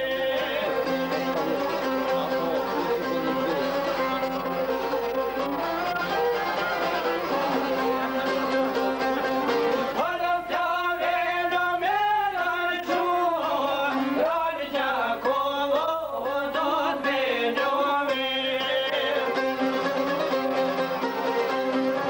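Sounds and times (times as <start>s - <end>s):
long-necked lute strummed: 0.0s - 10.4s, 17.2s - 22.0s
person singing folk song: 0.0s - 22.0s.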